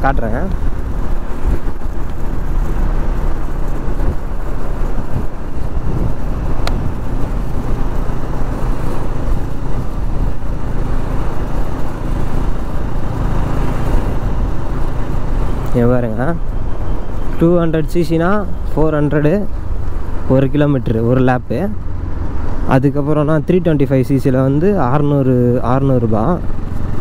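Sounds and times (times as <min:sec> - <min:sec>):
motorcycle engine running: 0:00.0 - 0:17.4
wind rushing: 0:00.0 - 0:17.7
road noise: 0:00.0 - 0:27.0.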